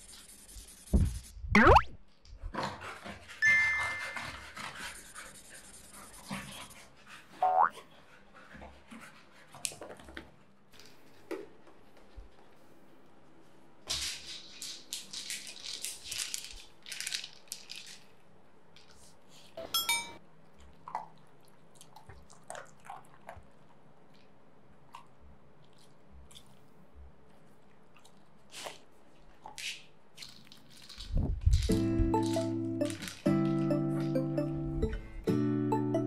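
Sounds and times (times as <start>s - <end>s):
plastic toy clattering: 13.9s - 18.1s, 29.5s - 33.3s.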